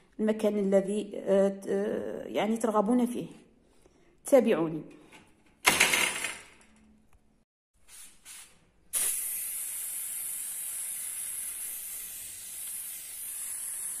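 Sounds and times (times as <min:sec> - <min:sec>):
spray paint can hissing: 0:07.8 - 0:14.0.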